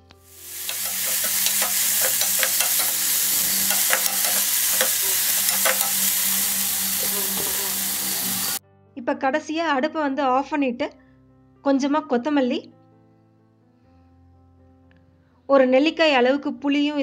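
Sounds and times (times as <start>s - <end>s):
food sizzling in oil: 0.0s - 8.6s
metal spoon scraping pan: 0.4s - 8.0s.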